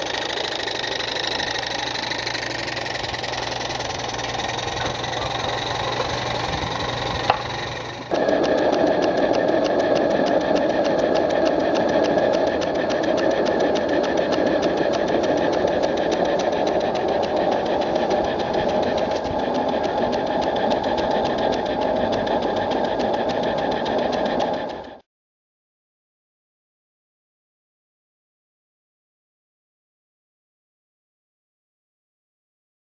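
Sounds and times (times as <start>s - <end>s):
steam engine rapid beat: 0.0s - 25.0s.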